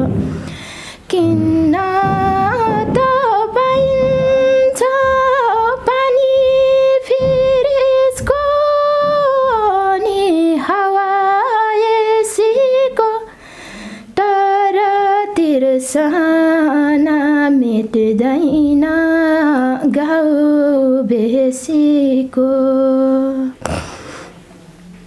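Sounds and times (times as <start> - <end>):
woman singing unaccompanied: 0.0 - 0.4, 1.0 - 13.3, 14.1 - 23.6.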